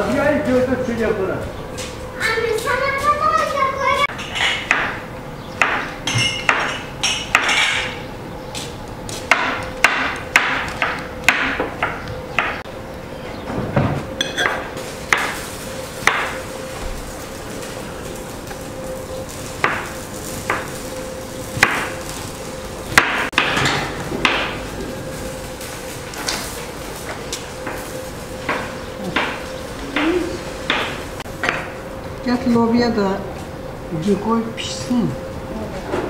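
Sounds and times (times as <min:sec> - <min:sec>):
hammer blows: 0:27.1 - 0:31.8.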